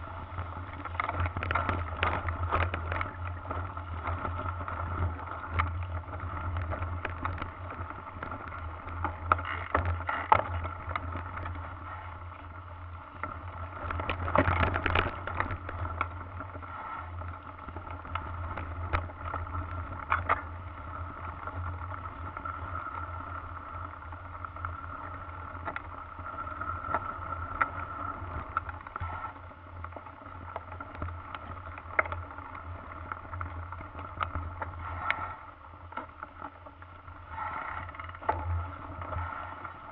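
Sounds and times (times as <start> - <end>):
bike knocking and rattling: 0.0 - 22.4
bike riding rumble: 0.0 - 39.9.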